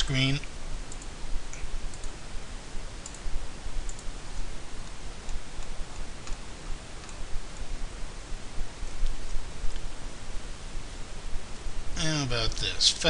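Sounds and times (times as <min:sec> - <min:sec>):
low mains hum: 0:00.0 - 0:13.0
steady hiss: 0:00.0 - 0:13.0
computer mouse clicks: 0:00.9 - 0:02.2, 0:03.0 - 0:06.4, 0:07.0 - 0:07.7.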